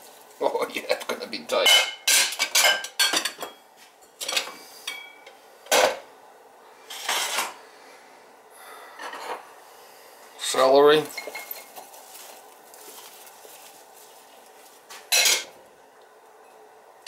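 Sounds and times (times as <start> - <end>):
kitchenware knocks and clinks: 15.1 - 15.5.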